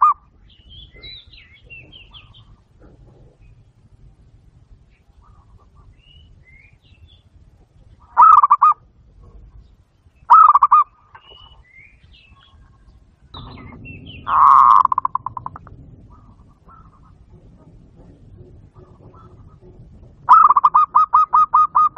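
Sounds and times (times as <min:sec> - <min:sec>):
dove cooing: 0:01.0 - 0:03.7, 0:08.1 - 0:09.4, 0:10.3 - 0:11.5, 0:13.4 - 0:21.9.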